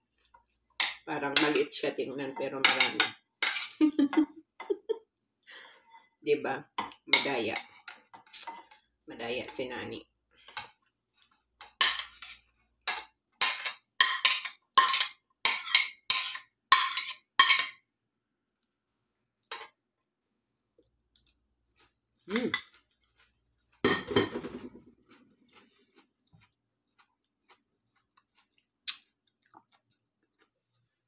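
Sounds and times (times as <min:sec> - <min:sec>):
spoon scraping a ceramic plate: 0:02.6 - 0:03.8, 0:11.6 - 0:17.8.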